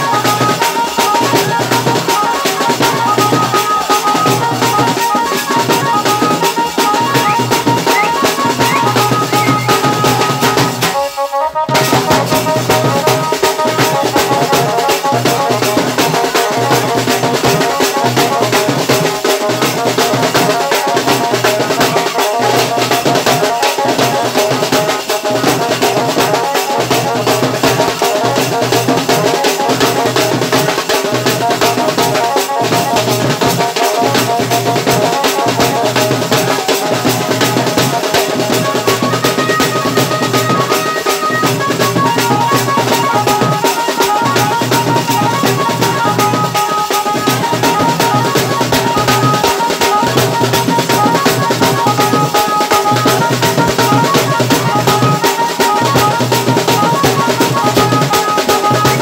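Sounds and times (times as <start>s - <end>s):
snare drums beating dance rhythm: 0.0s - 59.0s
melody playing: 6.8s - 10.4s.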